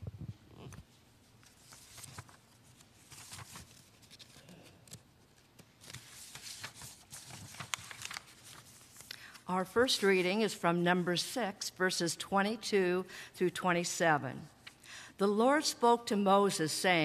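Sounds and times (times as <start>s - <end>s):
paper rustling and crinkling: 1.3s - 9.4s.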